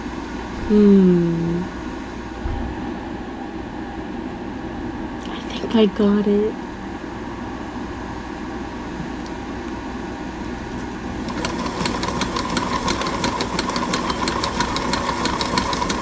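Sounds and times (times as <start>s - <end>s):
sewing machine motor whining: 11.2s - 16.0s.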